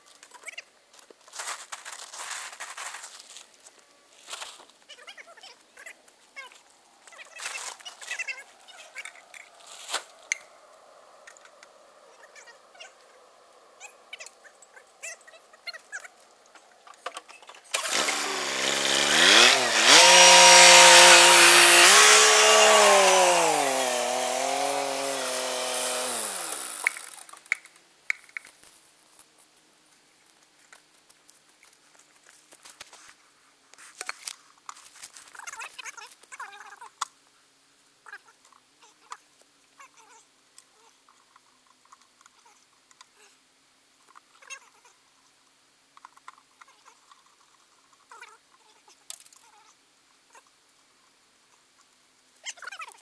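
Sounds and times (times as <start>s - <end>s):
tractor engine starting and revving: 17.7s - 27.3s.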